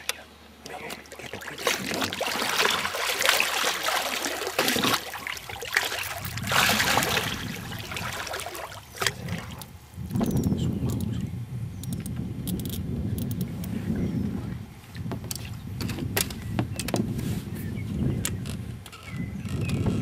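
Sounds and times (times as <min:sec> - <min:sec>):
water splashing and churning: 0:00.7 - 0:09.8.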